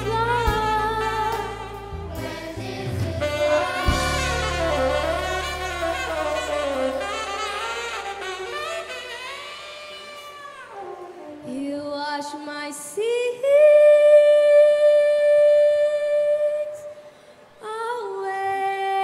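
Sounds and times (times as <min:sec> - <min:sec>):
girl singing into microphone: 0:11.4 - 0:17.0, 0:17.6 - 0:19.0.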